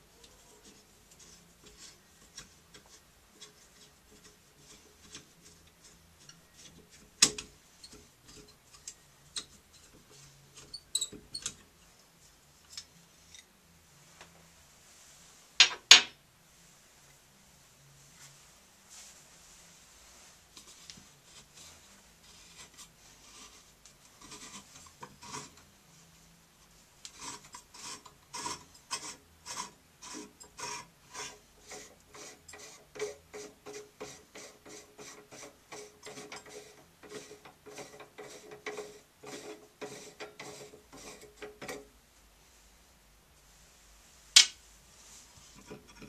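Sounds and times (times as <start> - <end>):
hand rubbing metal plate: 27.2 - 41.8.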